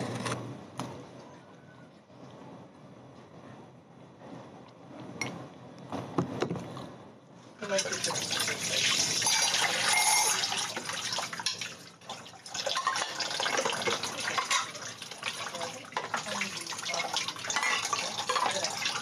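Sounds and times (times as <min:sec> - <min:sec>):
dishes rinsed by hand: 0:07.6 - 0:19.0
water running from a tap: 0:07.6 - 0:19.0.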